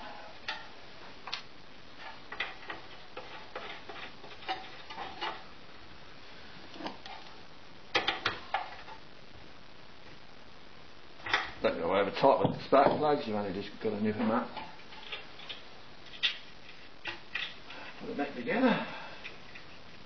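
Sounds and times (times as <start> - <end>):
metallic clicks and scrapes: 2.0 - 5.4.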